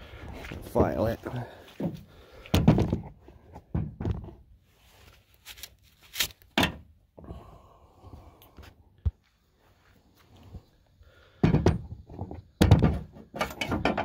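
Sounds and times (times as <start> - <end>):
brief rustle: 4.9 - 6.5.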